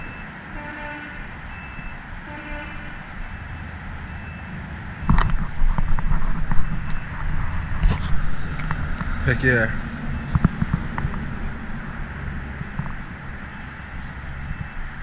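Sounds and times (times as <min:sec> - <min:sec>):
wind rumble on microphone: 0:00.0 - 0:15.0
faint short beeps: 0:01.5 - 0:02.0.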